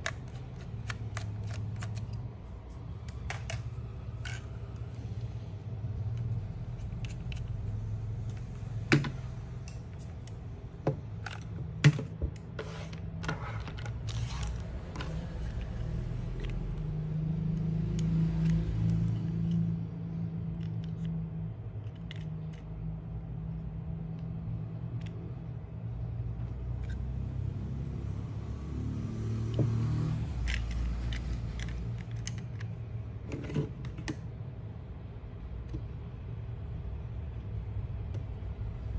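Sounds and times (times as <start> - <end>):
screwdriver on screw: 0.0 - 2.3.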